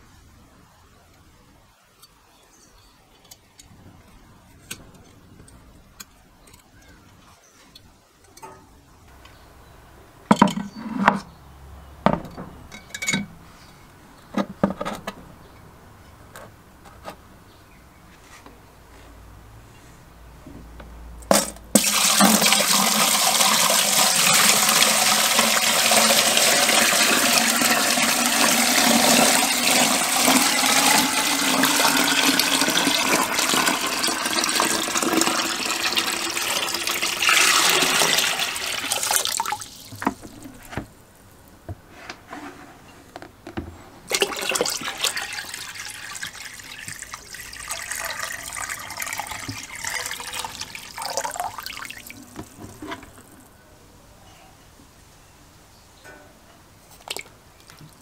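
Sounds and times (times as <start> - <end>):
water pouring into plastic barrel: 21.7 - 40.6, 44.1 - 52.6
water splashing: 44.1 - 52.4.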